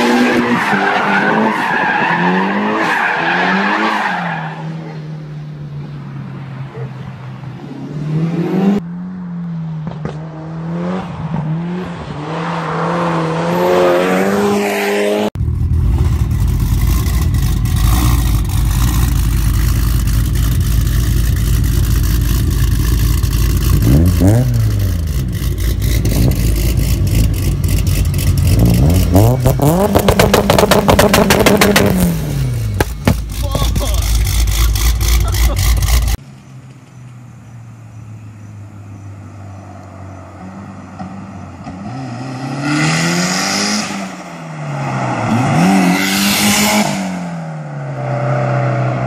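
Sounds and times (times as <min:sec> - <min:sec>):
car engine revving: 0:07.6 - 0:36.2, 0:39.8 - 0:49.0
exhaust pops and bangs: 0:27.8 - 0:32.1, 0:32.7 - 0:34.3.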